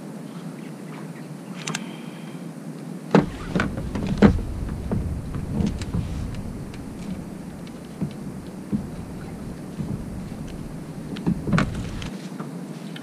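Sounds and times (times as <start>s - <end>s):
sharp knocks and clicks: 3.2s - 12.1s
water and wind rumble: 3.2s - 12.1s.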